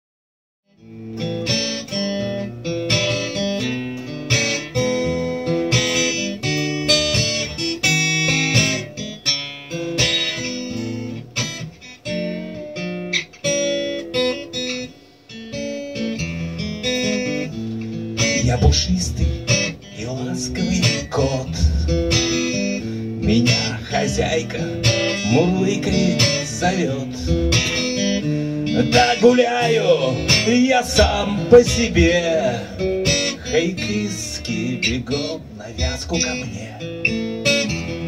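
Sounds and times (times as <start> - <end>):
acoustic guitar strummed chords: 0.7 - 38.0.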